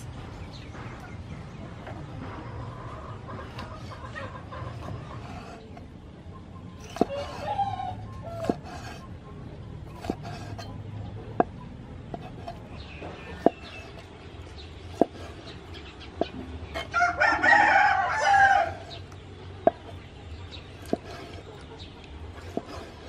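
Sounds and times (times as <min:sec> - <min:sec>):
knife chopping on wooden board: 0:06.8 - 0:07.4, 0:08.4 - 0:09.0, 0:09.9 - 0:10.7, 0:11.3 - 0:14.1, 0:14.9 - 0:15.6, 0:19.6 - 0:20.0, 0:20.8 - 0:21.4, 0:22.4 - 0:23.0.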